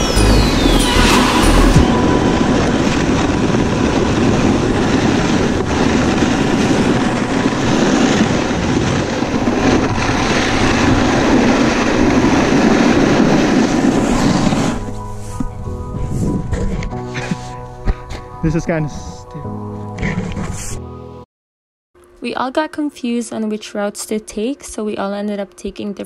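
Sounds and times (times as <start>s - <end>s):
snowboard scraping on snow: 0.0s - 17.3s
wind on microphone: 0.0s - 18.2s.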